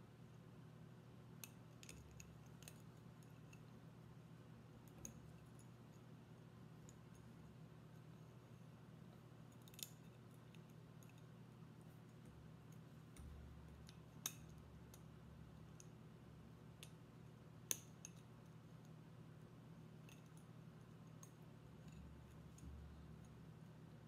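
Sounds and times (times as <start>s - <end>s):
low steady hum: 0.0s - 24.0s
wire clicking against stone: 9.5s - 11.3s, 12.1s - 15.1s.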